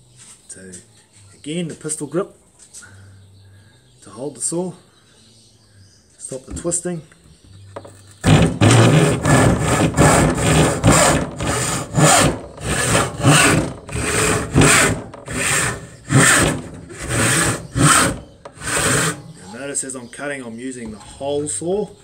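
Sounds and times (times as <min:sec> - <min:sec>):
handsaw sawing wood: 0:08.0 - 0:19.6.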